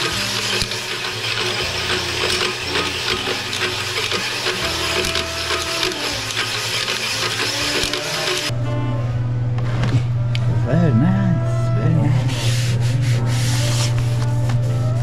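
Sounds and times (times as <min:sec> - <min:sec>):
cylinder hone grinding and clattering: 0:00.0 - 0:08.5.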